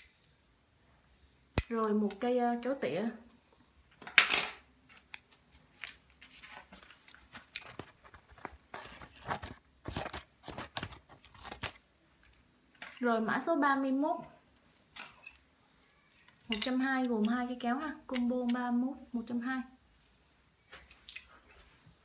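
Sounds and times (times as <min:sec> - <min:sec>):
pruning shears cutting paper: 0:09.9 - 0:11.8.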